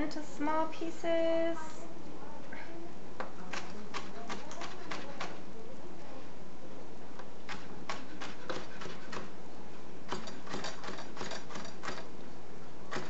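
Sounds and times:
knife chopping on cutting board: 7.5 - 9.3.

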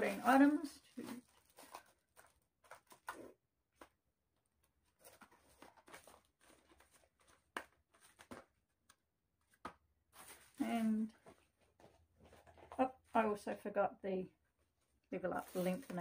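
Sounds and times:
makeup packaging clicks and rustles: 0.8 - 4.0, 4.8 - 10.6.

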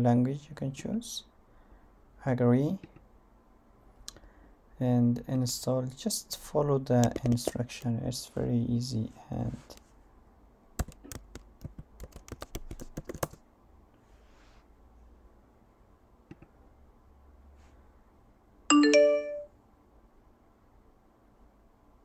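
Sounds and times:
keyboard typing: 10.8 - 13.4
two-note alert chime: 18.7 - 19.5.

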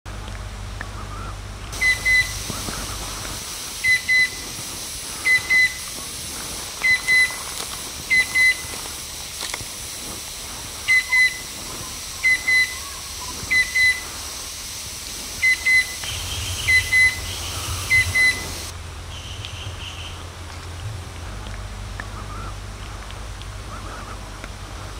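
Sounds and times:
cuckoo whistled double notes: 15.4 - 18.6.

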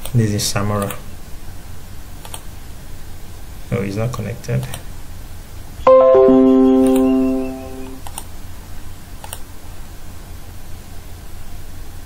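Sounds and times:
device connected chime: 5.9 - 8.0.

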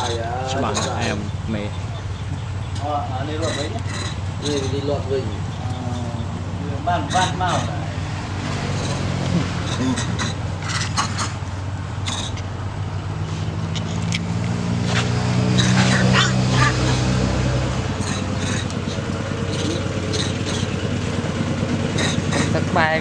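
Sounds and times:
faint voices: 0.0 - 2.0
motor engine running: 0.0 - 23.0.

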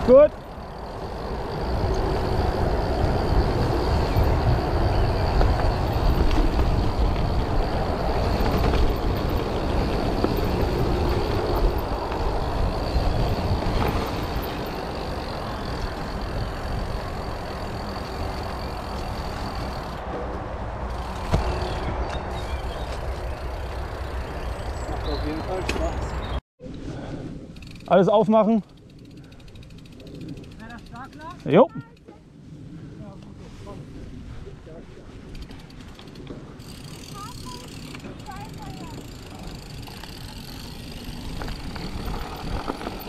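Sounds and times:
tyres crunching through gravel: 0.0 - 20.0, 35.8 - 43.0
wind rumbling on microphone: 0.0 - 27.7, 28.8 - 43.0.

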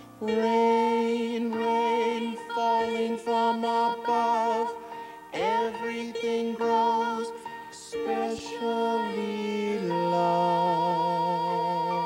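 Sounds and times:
slow song melody: 0.0 - 12.0.

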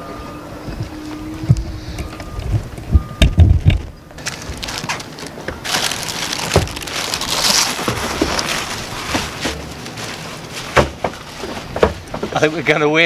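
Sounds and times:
fabric bag rustling and crumpling: 4.2 - 11.8.

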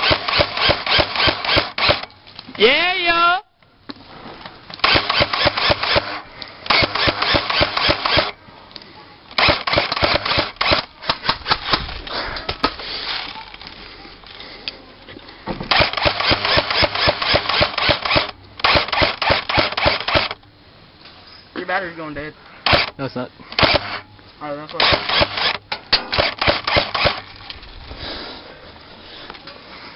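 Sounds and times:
airsoft gunfire clacks: 0.0 - 2.1, 4.8 - 8.3, 9.4 - 11.8, 15.7 - 20.4, 22.7 - 22.9, 23.6 - 24.0, 24.8 - 27.2.

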